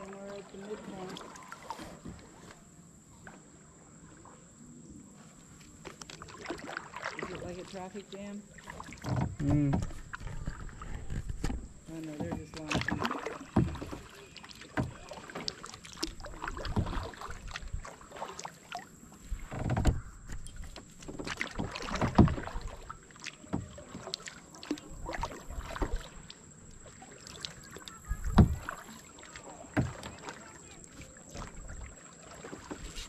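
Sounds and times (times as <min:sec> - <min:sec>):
kayak paddle splashing in water: 0:00.0 - 0:33.0
water dripping: 0:05.9 - 0:18.9, 0:19.8 - 0:32.8
small knocks: 0:09.0 - 0:14.2.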